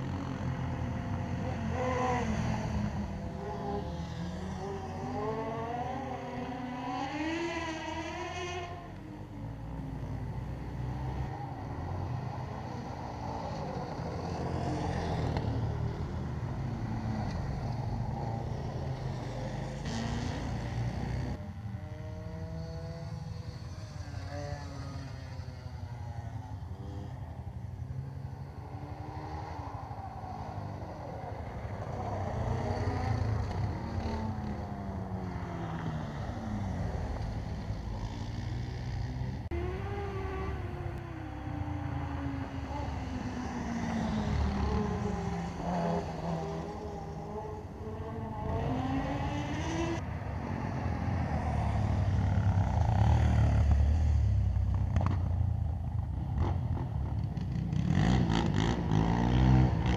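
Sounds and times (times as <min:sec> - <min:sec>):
quad bike engines revving: 0:00.0 - 0:59.9.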